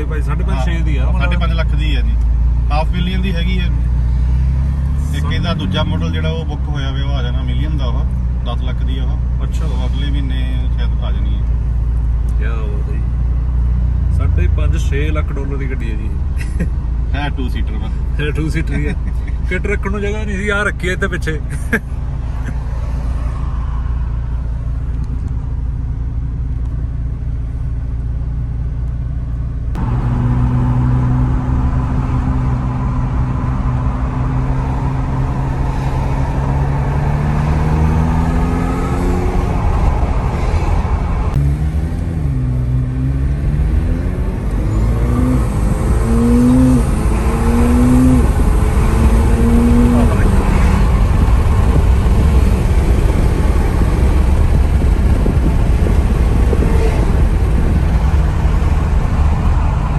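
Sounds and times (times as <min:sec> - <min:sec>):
car engine accelerating through gears: 0:29.7 - 0:59.9.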